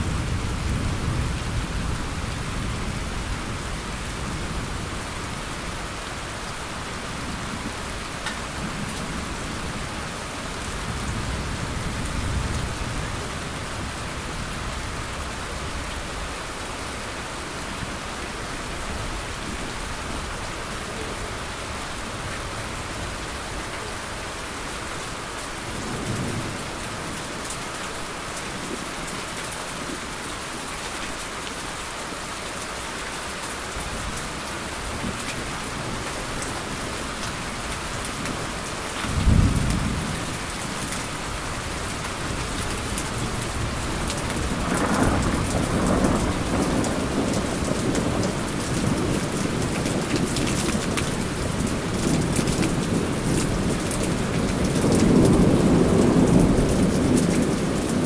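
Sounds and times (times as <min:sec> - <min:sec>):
steady rain: 0:00.0 - 0:58.0
loud thunderclap: 0:39.1 - 0:40.2, 0:44.3 - 0:48.2
thunder rumbling: 0:39.1 - 0:58.0.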